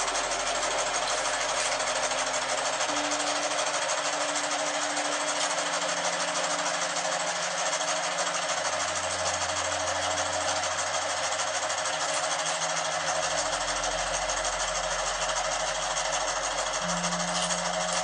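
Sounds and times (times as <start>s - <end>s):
sewing machine stitching: 0.0s - 18.0s.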